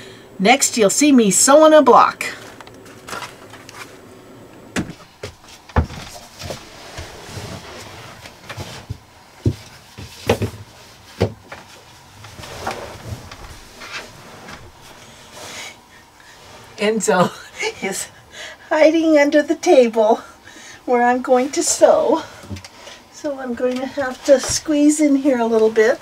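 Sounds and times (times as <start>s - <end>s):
knocks and thumps on a table: 4.8s - 6.2s.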